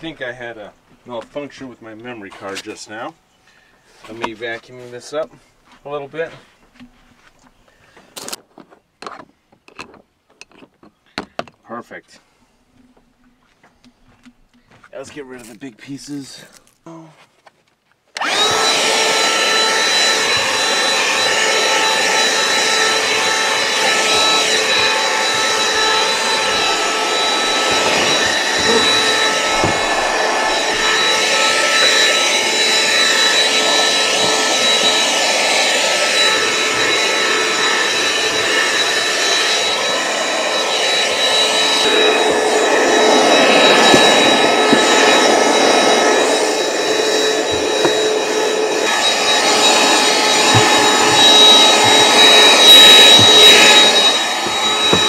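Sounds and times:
cordless vacuum whining: 18.2 - 55.0.

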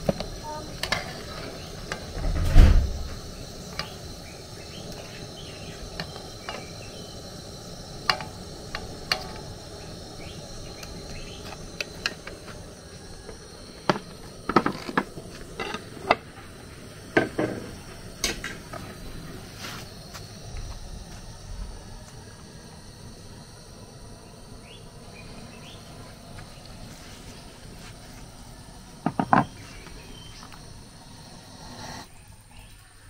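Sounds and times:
heavy thump: 2.2 - 3.2.

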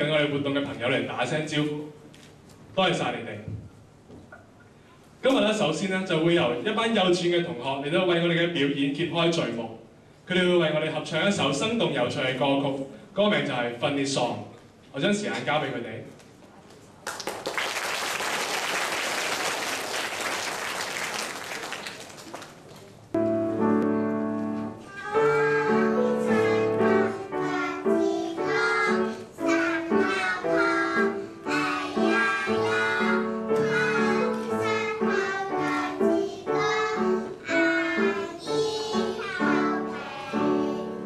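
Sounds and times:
applause: 17.0 - 23.0
instrumental accompaniment: 23.2 - 41.0
children's chorus singing: 24.9 - 41.0.

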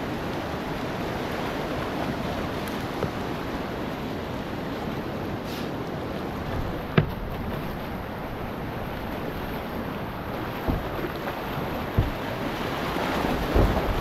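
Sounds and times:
whitewater rapids rushing: 0.0 - 14.0
short low thumps: 10.6 - 11.1, 11.8 - 12.3.

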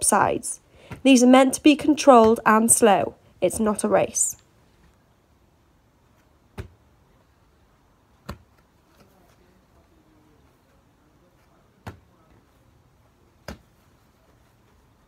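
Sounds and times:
ball smacking against hands: 6.5 - 6.8, 8.2 - 9.1, 13.4 - 13.8.

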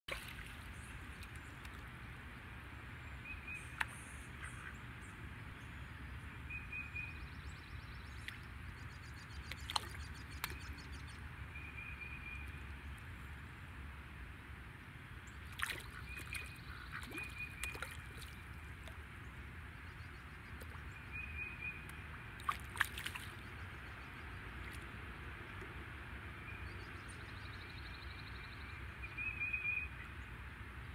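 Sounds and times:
water lapping around wading dog: 0.1 - 1.8, 9.4 - 10.8, 15.4 - 19.1, 22.0 - 23.9
small splashes: 0.1 - 1.9, 9.4 - 10.7, 15.3 - 19.1, 20.5 - 21.0, 21.8 - 23.6.

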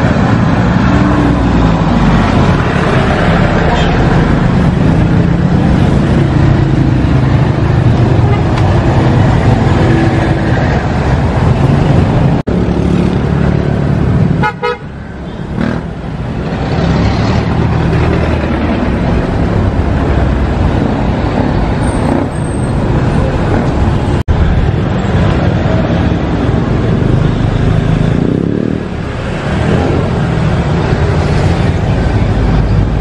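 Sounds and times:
street traffic rumbling: 0.0 - 33.0
vehicle horn toot: 14.4 - 14.9.

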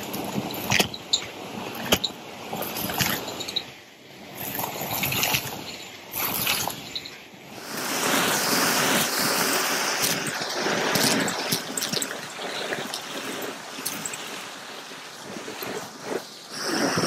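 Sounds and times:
vacuum cleaner suction: 7.6 - 11.9, 15.7 - 17.0.

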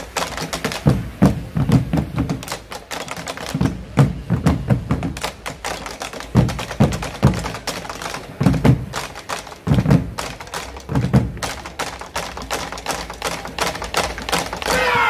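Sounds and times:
deep drum thumps: 0.9 - 2.4, 10.9 - 11.4.

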